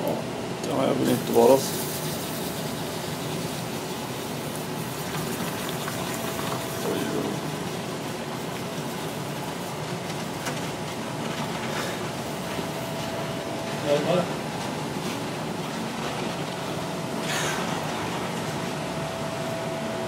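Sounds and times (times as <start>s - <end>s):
steam hissing: 1.0s - 10.0s.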